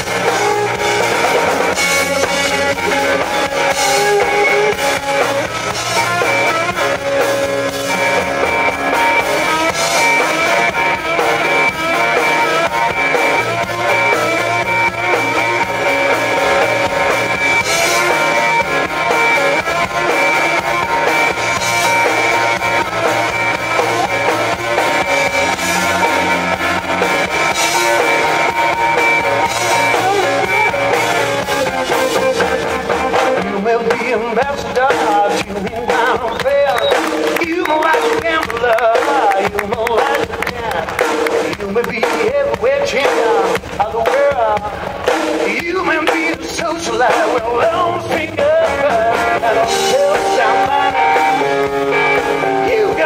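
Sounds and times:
drum kit: 0:00.0 - 0:53.0
electric guitar: 0:00.0 - 0:53.0.

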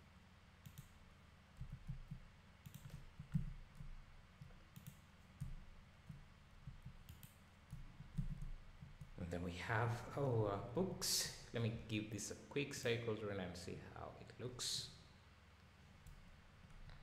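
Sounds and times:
mouse and keyboard clicking: 0:01.6 - 0:03.9, 0:04.7 - 0:09.1.

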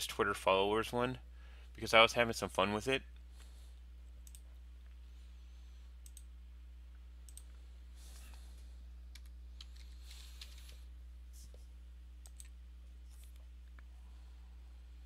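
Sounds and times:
steady low hum: 0:00.0 - 0:15.0
computer mouse and keyboard clicks: 0:09.1 - 0:10.8, 0:12.2 - 0:12.5.

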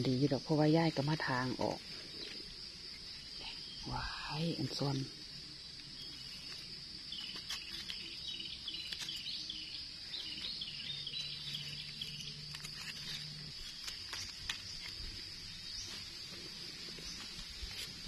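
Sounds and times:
crickets trilling: 0:00.0 - 0:18.0
quick insect chirps: 0:00.0 - 0:18.0
dry leaves crackling: 0:06.1 - 0:18.0.

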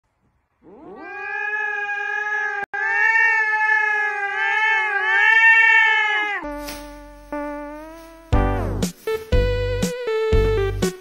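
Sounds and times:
cat yowling: 0:00.6 - 0:06.4.

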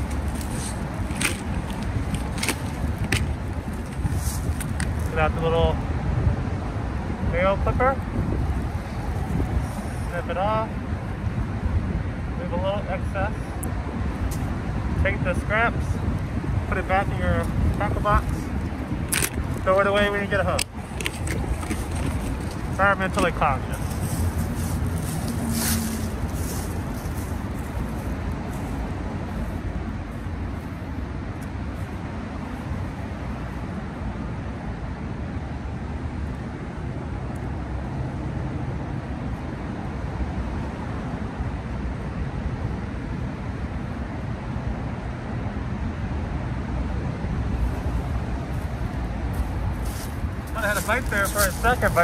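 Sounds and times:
wind on microphone rumble: 0:00.0 - 0:12.5, 0:13.5 - 0:34.2
distant road traffic hum: 0:00.0 - 0:52.0.

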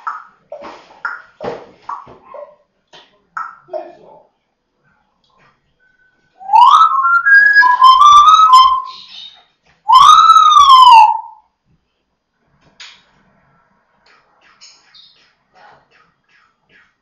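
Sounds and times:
parrot whistling loudly: 0:06.4 - 0:11.4.

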